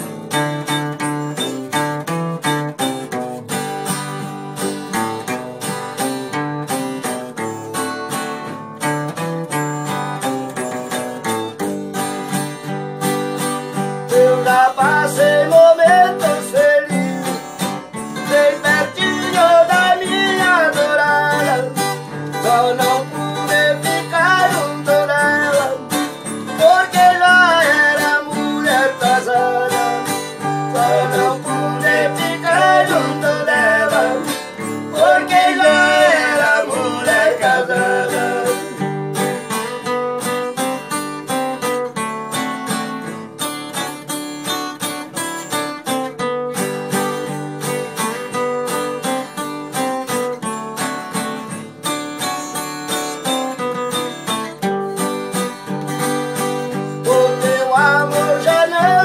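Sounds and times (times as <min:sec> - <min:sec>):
acoustic guitars strummed: 0:00.0 - 0:59.0
men singing together: 0:14.1 - 0:17.4, 0:18.2 - 0:38.8, 0:57.0 - 0:59.0.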